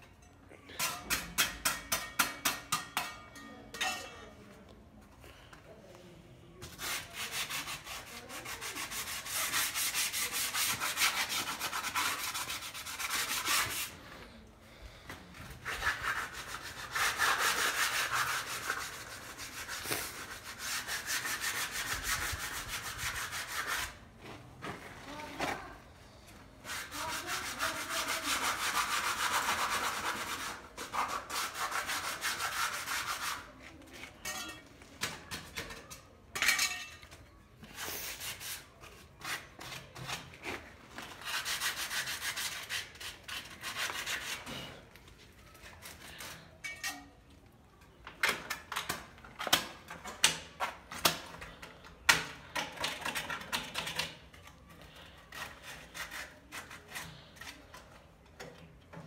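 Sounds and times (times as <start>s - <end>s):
sharp scrapes and taps: 0.8s - 4.0s, 15.1s - 24.0s
sandpaper rubbing on metal: 6.7s - 14.0s, 15.6s - 24.0s, 26.7s - 33.5s, 41.2s - 44.7s, 55.3s - 57.6s.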